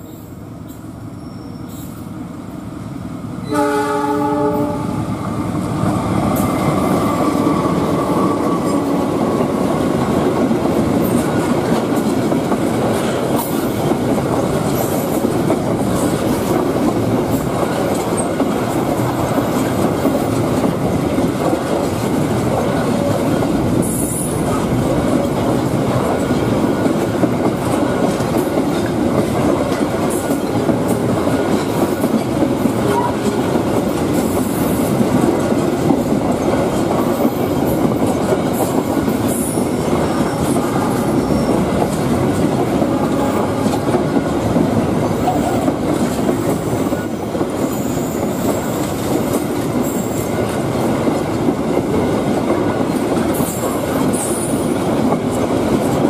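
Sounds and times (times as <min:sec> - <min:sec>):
train wheels rumbling on rail: 0:00.0 - 0:56.0
high-pitched wheel squeals: 0:01.2 - 0:02.0.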